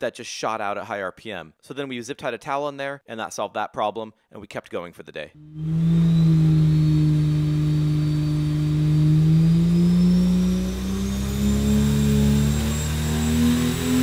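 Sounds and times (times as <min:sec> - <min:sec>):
engine revving under load: 0:05.4 - 0:14.0
high whine: 0:05.4 - 0:14.0.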